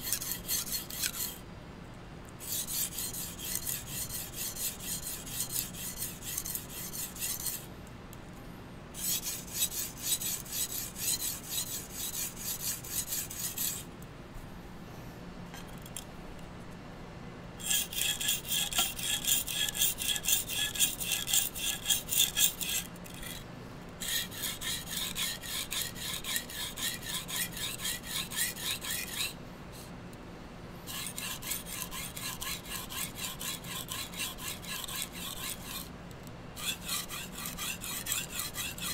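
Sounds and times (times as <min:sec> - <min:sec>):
knife scraping on whetstone: 0:00.0 - 0:01.4, 0:02.4 - 0:07.6, 0:09.0 - 0:13.9, 0:17.6 - 0:23.4, 0:24.0 - 0:29.4, 0:30.9 - 0:35.9, 0:36.6 - 0:38.9.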